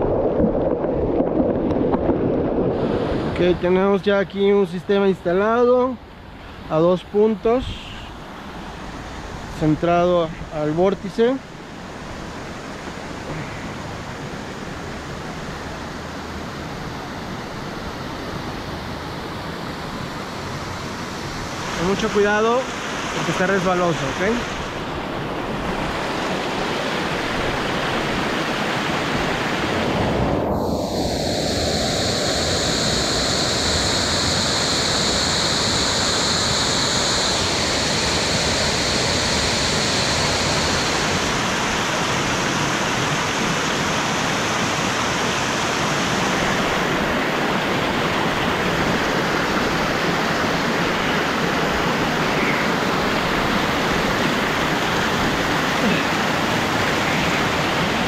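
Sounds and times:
waterfall rushing over rock: 20.2 - 30.4, 31.0 - 58.0.

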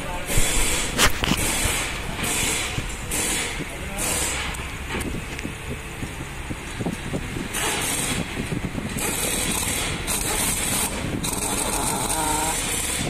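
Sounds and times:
pneumatic impact wrench bursts: 0.2 - 5.1, 7.4 - 13.0.

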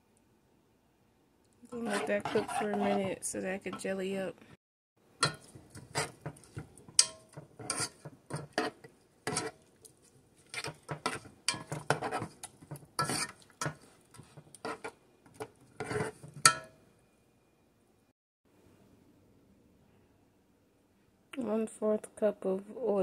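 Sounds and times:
metal spoon scraping saucepan: 1.7 - 3.9, 5.2 - 9.6, 10.4 - 16.7.

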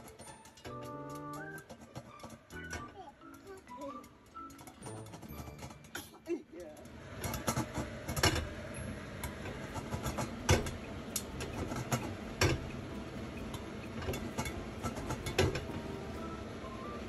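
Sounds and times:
popcorn popping: 0.0 - 17.0.

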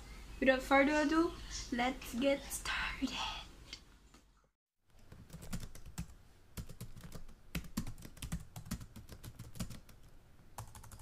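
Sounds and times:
computer keyboard typing: 5.0 - 11.0.

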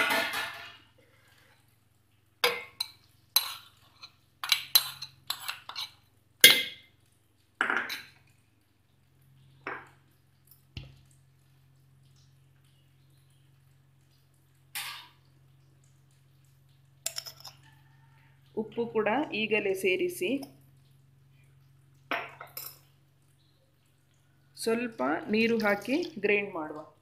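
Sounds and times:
metal pan clinking and scraping: 0.0 - 0.9, 2.4 - 6.8, 17.1 - 17.6.

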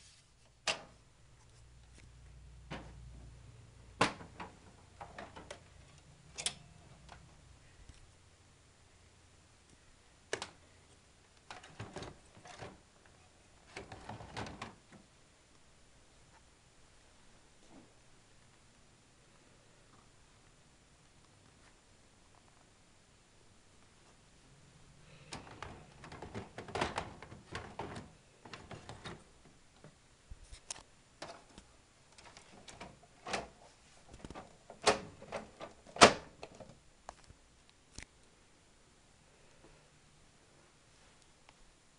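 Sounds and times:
plastic printer parts clicking: 25.3 - 29.2.

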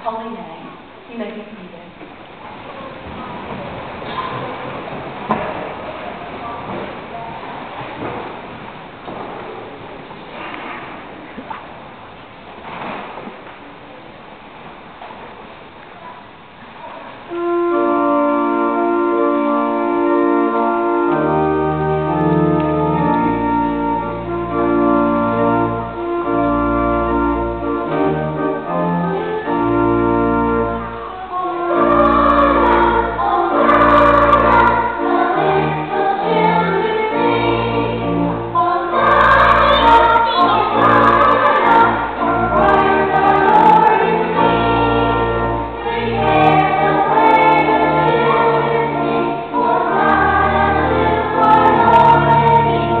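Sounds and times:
children's choir singing: 16.2 - 53.0
organ playing held chords: 17.3 - 53.0
deep organ bass notes: 17.4 - 31.0, 31.7 - 53.0.

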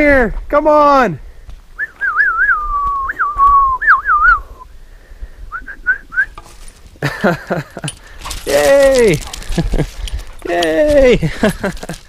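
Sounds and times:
person whistling: 1.8 - 4.7, 5.5 - 6.4.

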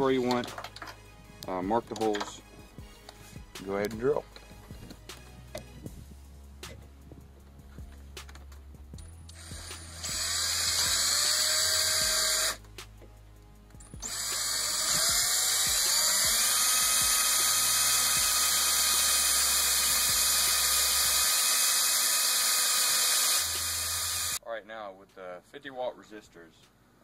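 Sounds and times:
power drill whining: 9.3 - 12.6, 14.0 - 24.4.

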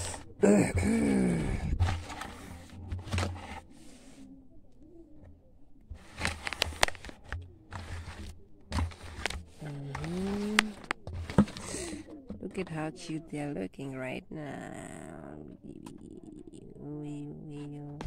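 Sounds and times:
phone handling noise: 6.0 - 11.9.

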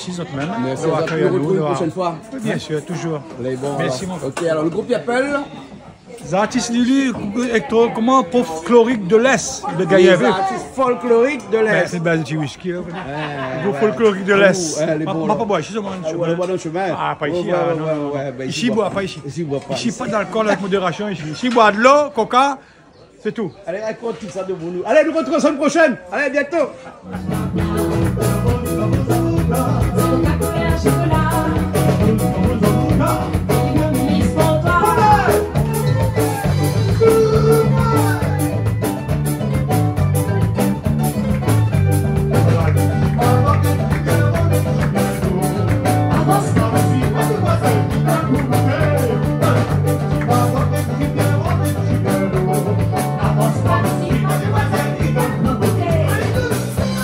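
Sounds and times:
live band playing folk song: 27.0 - 57.0
person singing: 27.2 - 38.8, 42.3 - 57.0.

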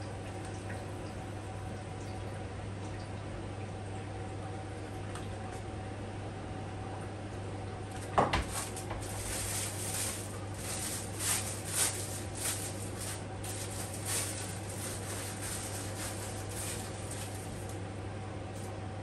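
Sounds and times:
steady low hum: 0.0 - 19.0
plastic bag crinkling: 8.4 - 17.8.

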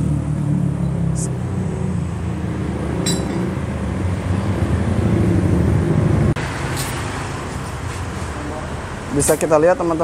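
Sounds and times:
metal clink: 3.0 - 3.5.

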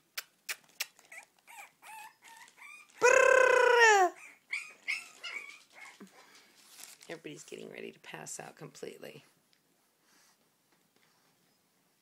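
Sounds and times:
puppies squeaking and whimpering: 0.6 - 3.0, 3.9 - 6.2
puppy crying: 1.0 - 6.1.

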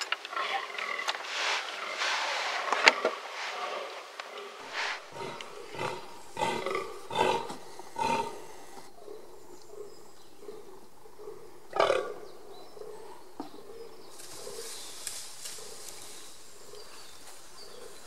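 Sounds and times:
deer groaning: 4.2 - 9.8.

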